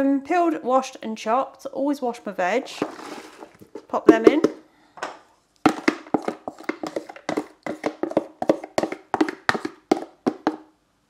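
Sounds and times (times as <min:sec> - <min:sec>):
plastic tub tapped and shaken: 0:02.8 - 0:10.7.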